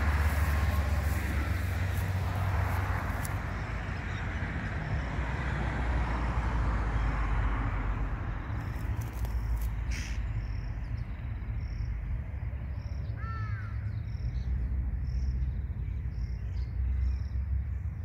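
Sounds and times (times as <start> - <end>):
insect chirping: 0.0 - 4.2, 7.9 - 16.4
steady low rumble: 0.0 - 5.3.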